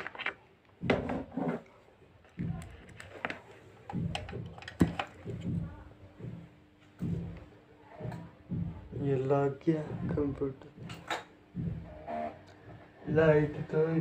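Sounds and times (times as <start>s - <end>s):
steady low hum: 0.8s - 14.0s
clicks and knocks of equipment: 2.2s - 5.6s.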